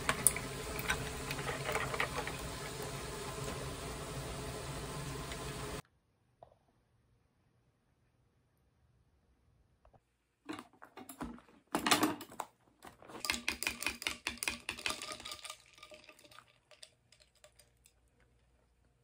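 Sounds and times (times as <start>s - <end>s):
ice rattling in plastic cup: 13.0s - 18.6s.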